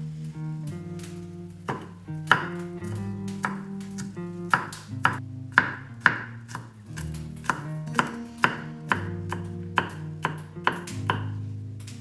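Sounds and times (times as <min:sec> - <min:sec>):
background music: 0:00.0 - 0:12.0
knife chopping on wooden board: 0:01.7 - 0:02.6, 0:03.4 - 0:11.4.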